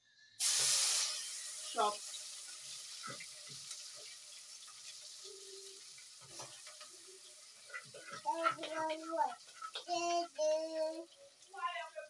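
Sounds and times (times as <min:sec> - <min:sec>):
oil sizzling in pot: 0:00.0 - 0:12.0.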